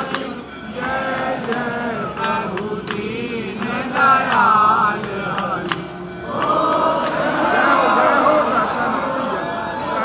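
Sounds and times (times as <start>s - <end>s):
voices singing a hymn: 0.0s - 10.0s.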